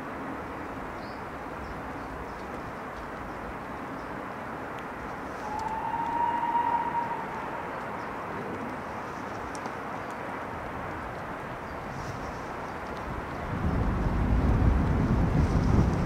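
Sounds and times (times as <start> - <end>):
gale-force wind: 0.0 - 16.0
rain on microphone: 0.0 - 16.0
distant steam locomotive whistle: 5.4 - 7.8.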